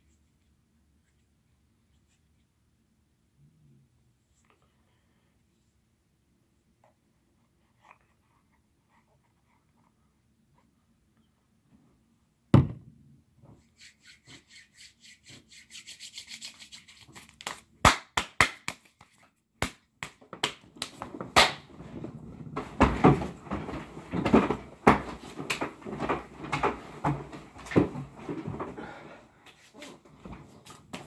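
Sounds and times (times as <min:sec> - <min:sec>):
thumps: 0:12.5 - 0:13.6
hands rubbing together: 0:13.6 - 0:17.6
hands slapping together: 0:16.2 - 0:21.6.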